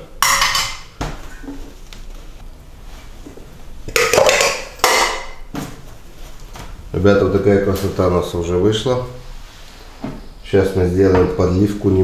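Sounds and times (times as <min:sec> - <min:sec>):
metal bowls clattering: 0:00.0 - 0:01.7, 0:03.9 - 0:05.5.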